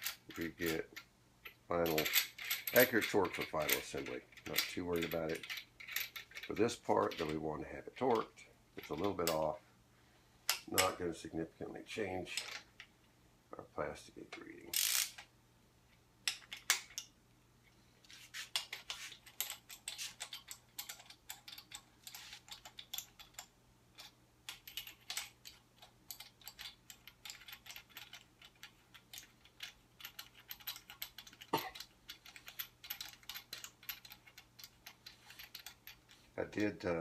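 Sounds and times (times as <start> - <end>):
small metal clinks: 0.0 - 7.3, 18.5 - 36.3.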